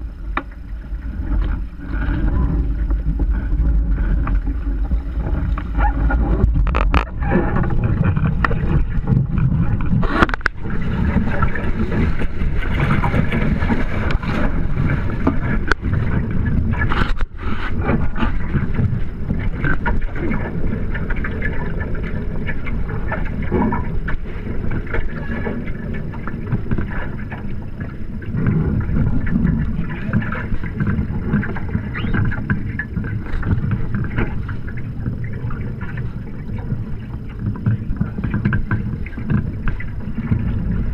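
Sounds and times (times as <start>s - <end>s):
hulls washing through water: 28.7s - 33.2s.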